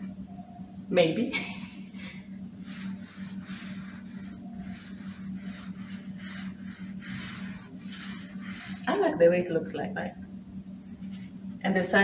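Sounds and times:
pad rubbing stain onto wood: 2.6 - 8.9.

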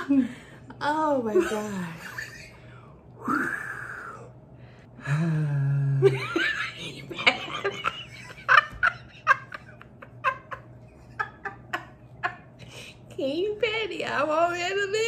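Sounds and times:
woman laughing heartily: 6.0 - 13.0.

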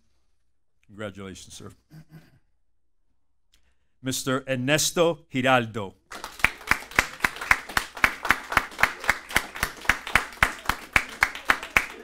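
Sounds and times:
person clapping: 6.1 - 12.0.

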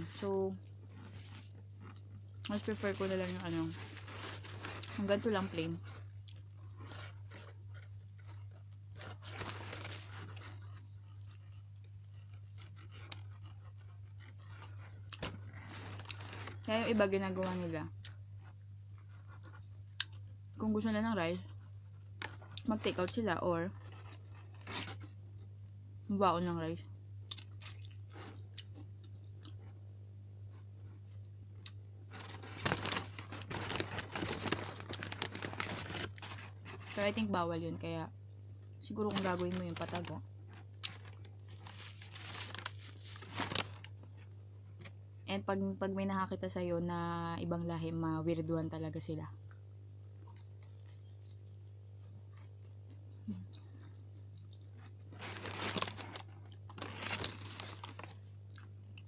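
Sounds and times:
chewing and crunching: 0.7 - 16.7, 17.3 - 20.4, 27.3 - 29.8, 38.6 - 44.9, 49.4 - 59.0
paper bag rustling: 2.6 - 5.6, 9.0 - 10.5, 15.2 - 17.6, 32.1 - 37.3, 39.1 - 40.2, 40.9 - 43.9, 55.1 - 58.2.

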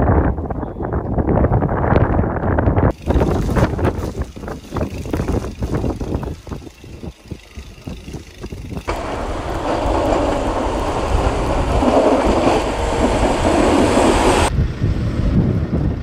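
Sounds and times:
wind buffeting microphone: 0.0 - 16.0
snowplow pushing snow: 2.9 - 14.5.

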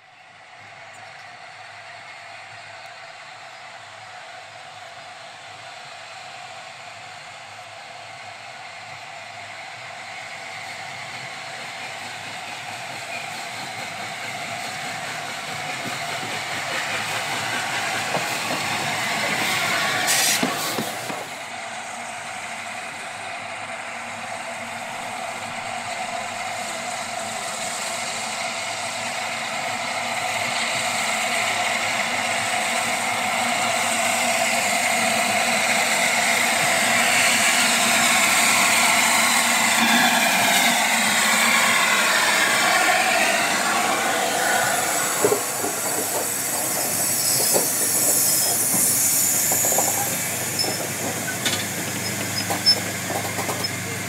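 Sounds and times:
steam locomotive working: 0.0 - 54.0
loud steam burst: 17.7 - 21.5.

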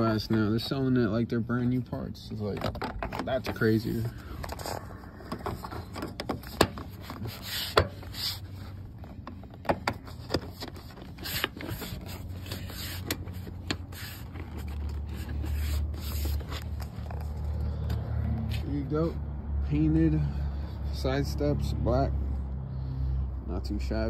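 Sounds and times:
hand rubbing plastic: 2.4 - 18.7.

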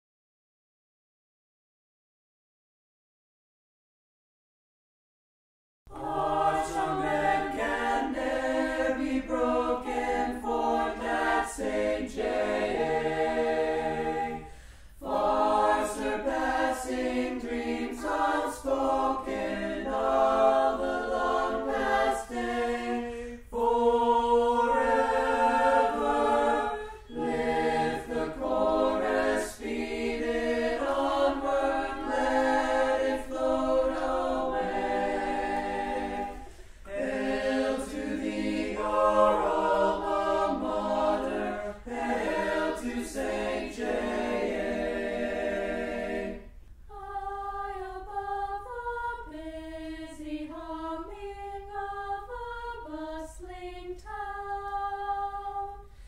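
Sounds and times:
choir singing: 5.9 - 56.0.

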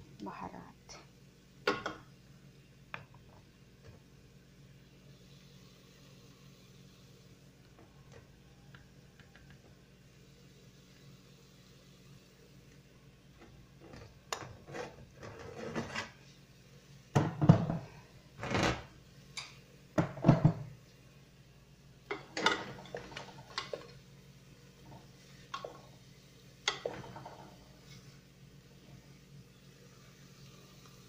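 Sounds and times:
kitchen containers and lids clinking: 22.1 - 23.9.

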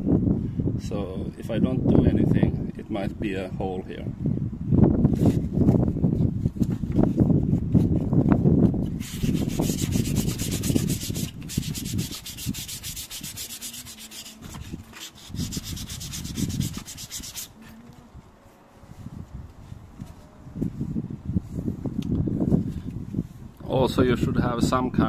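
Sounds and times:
sandpaper rasping on rubber sole: 8.9 - 17.8.

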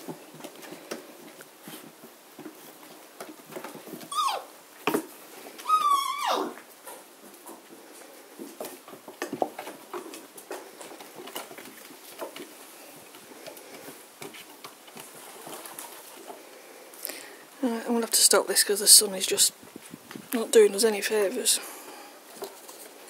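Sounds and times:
puppy paws pattering on wood: 0.0 - 16.6
puppy whining: 4.1 - 4.6, 5.6 - 6.6.

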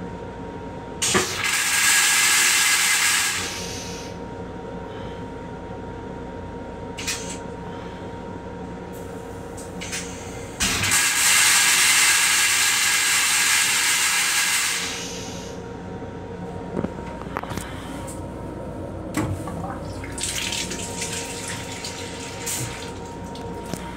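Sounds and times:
toilet flushing: 1.0 - 4.1, 9.8 - 15.5, 19.4 - 23.8.

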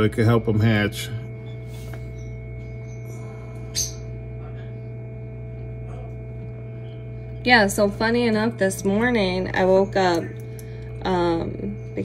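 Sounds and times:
incubator fan and heater hum: 0.0 - 12.0.

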